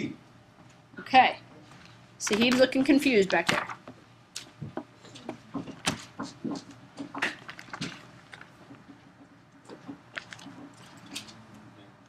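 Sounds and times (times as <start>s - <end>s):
faint low murmur: 10.8s - 12.0s.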